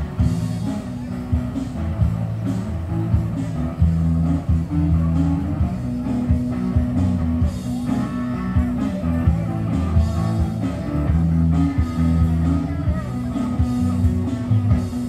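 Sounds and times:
rock band playing: 0:00.0 - 0:15.0.

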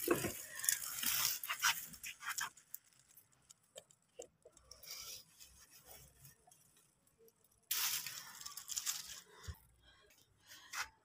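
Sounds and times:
leaves rustling: 0:00.0 - 0:03.1, 0:07.7 - 0:09.6.

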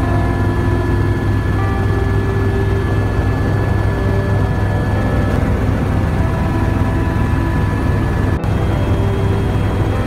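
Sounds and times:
helicopter rotor and engine drone: 0:00.0 - 0:10.0
high whine: 0:00.0 - 0:10.0.

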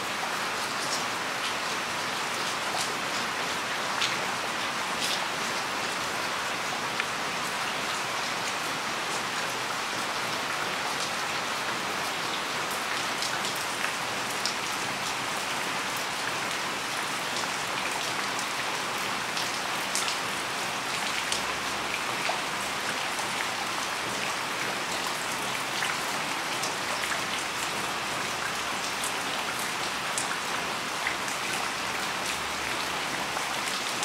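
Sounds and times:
heavy rain on leaves: 0:00.0 - 0:34.0.

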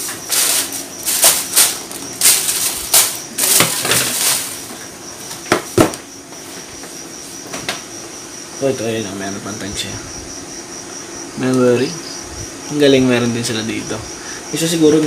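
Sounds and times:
plastic wrapping crinkling: 0:00.0 - 0:04.8
sharp knocks: 0:05.5 - 0:06.0.

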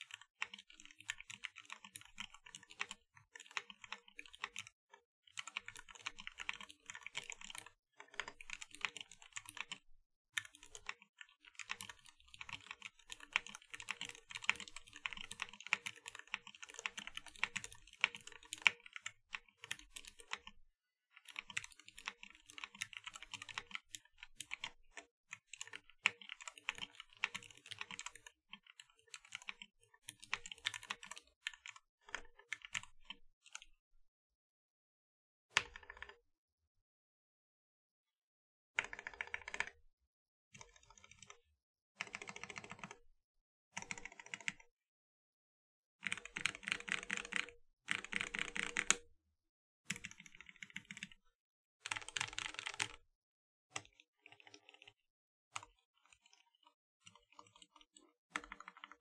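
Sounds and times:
fast typing on mechanical keyboard: 0:00.0 - 0:09.8, 0:10.4 - 0:20.6, 0:21.2 - 0:33.6, 0:38.8 - 0:39.8, 0:42.0 - 0:43.0, 0:43.8 - 0:44.6, 0:46.0 - 0:49.0, 0:49.9 - 0:51.2, 0:51.8 - 0:53.0, 0:58.4 - 0:59.0.

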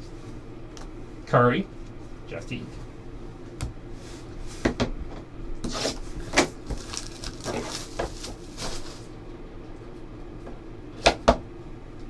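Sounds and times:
cardboard rustling: 0:05.7 - 0:09.1.

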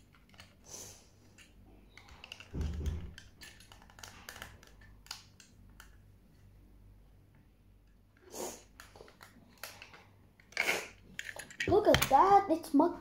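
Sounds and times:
toy cars clicking and tapping: 0:01.3 - 0:06.0.

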